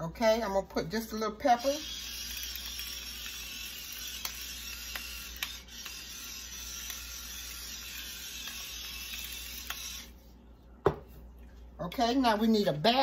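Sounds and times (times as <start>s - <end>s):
pepper mill grinding: 1.6s - 10.1s.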